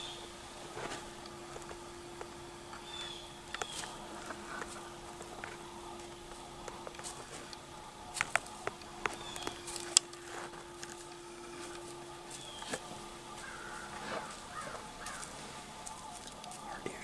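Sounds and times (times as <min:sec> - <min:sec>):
faint steady hum: 0:00.0 - 0:17.0
faint bird calls: 0:09.0 - 0:17.0.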